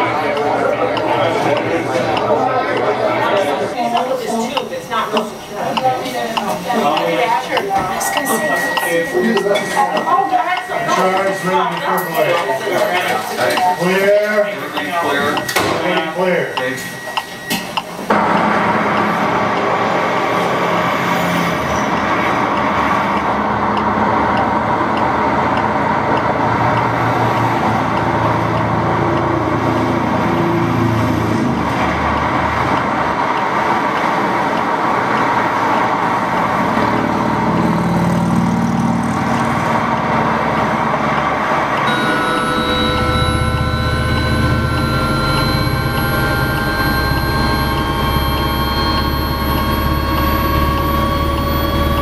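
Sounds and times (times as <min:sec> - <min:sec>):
faint metronome beeps: 0:00.0 - 0:19.1, 0:41.8 - 0:52.0
heavy freeway traffic roar: 0:00.0 - 0:52.0
steady engine noise: 0:00.0 - 0:52.0.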